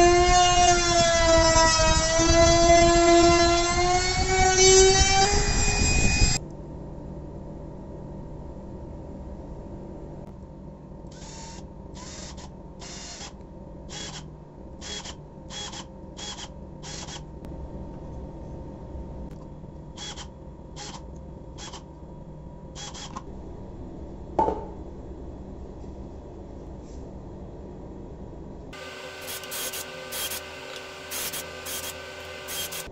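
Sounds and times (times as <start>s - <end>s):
cordless drill driving screws: 14.8s - 17.2s, 29.1s - 32.9s.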